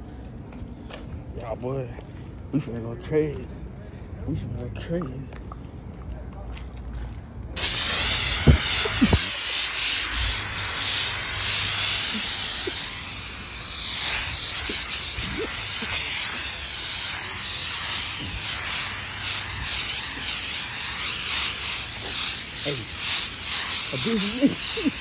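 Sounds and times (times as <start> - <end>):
spray paint can hissing: 7.6 - 25.0.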